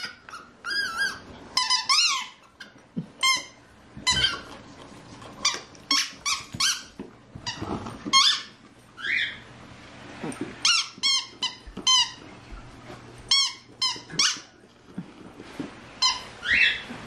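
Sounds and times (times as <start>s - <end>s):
squeaky dog toy squeaking: 0.0s - 4.5s, 5.4s - 9.4s, 10.6s - 12.2s, 13.3s - 14.5s.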